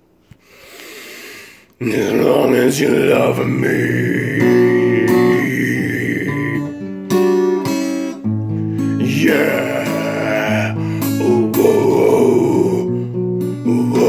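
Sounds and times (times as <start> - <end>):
man singing: 1.8 - 6.9, 8.8 - 14.0
acoustic guitar strummed: 1.8 - 14.0.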